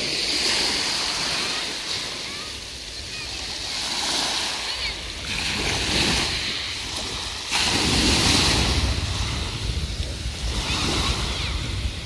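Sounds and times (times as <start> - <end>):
waves washing over pebbles: 0.0 - 12.0
wind rumbling on microphone: 4.7 - 12.0.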